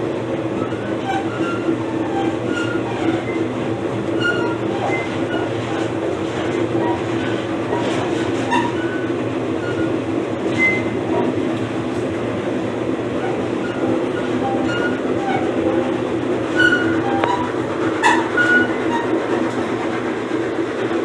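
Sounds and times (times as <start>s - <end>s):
train wheels rumbling on rail: 0.0s - 21.0s
high squeaks: 0.6s - 3.5s, 4.1s - 11.0s, 13.2s - 15.9s, 16.5s - 19.2s.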